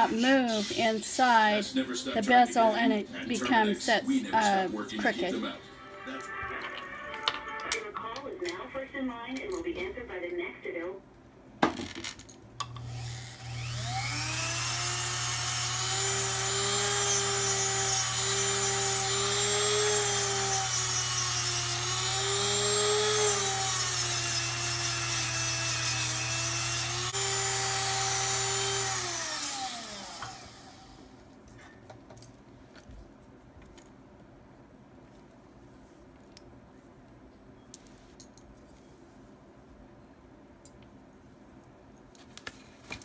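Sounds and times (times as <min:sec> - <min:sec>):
rotary tool whining: 0:12.7 - 0:31.1.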